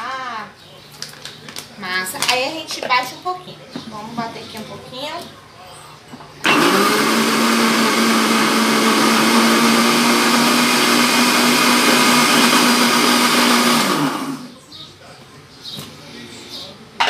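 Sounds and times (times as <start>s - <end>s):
blender running: 6.4s - 14.5s.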